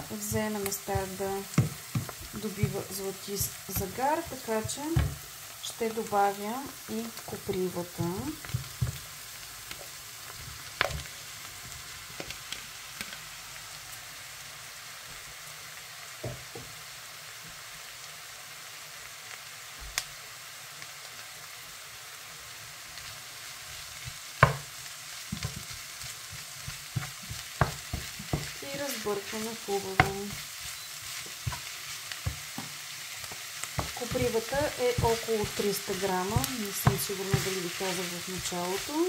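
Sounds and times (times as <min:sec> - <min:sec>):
onions sizzling in frying pan: 0:00.0 - 0:39.0
wooden spatula tapping pan: 0:00.2 - 0:05.4, 0:24.4 - 0:24.7, 0:25.3 - 0:39.0.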